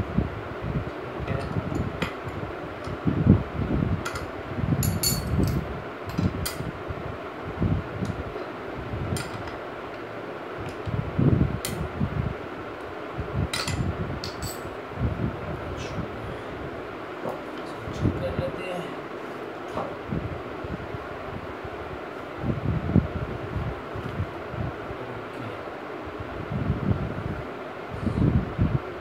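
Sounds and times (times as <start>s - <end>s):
background hum: 0.0s - 29.0s.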